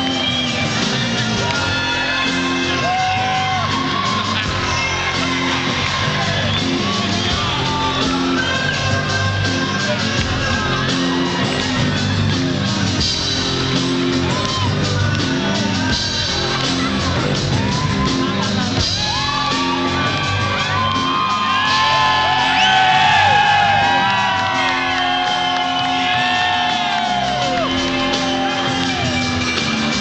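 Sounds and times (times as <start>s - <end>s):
bass line: 0.0s - 30.0s
rock band playing loudly: 0.0s - 30.0s
shouts and whoops: 1.4s - 10.0s, 17.4s - 29.4s.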